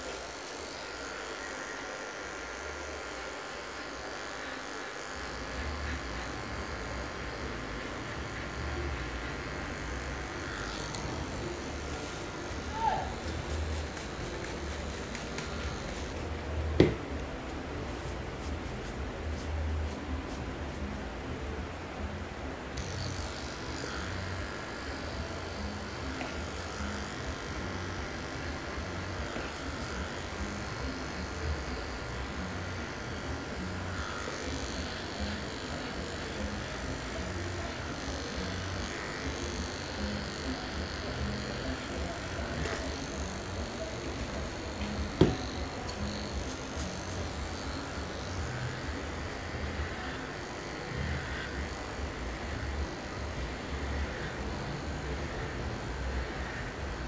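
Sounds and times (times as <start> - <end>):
electric hair clippers cutting: 0.0 - 21.0, 22.0 - 57.0.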